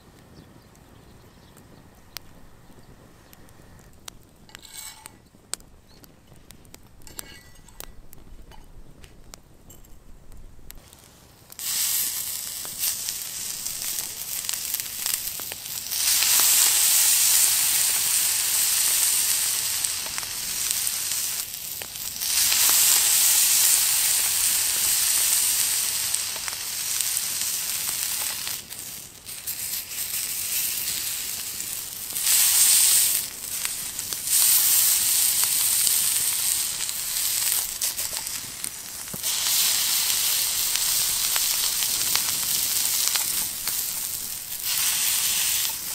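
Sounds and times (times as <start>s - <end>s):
meat sizzling on a grill pan: 11.6s - 45.9s.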